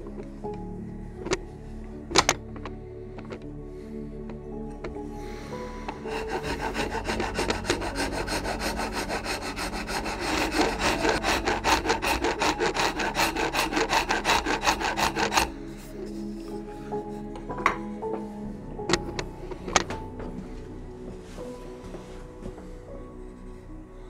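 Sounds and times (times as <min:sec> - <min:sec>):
file rasping on wood: 0:05.9 - 0:15.6.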